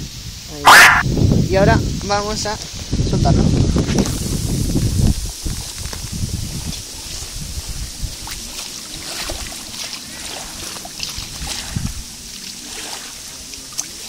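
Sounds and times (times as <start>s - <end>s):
footsteps wading through water: 5.1s - 14.0s.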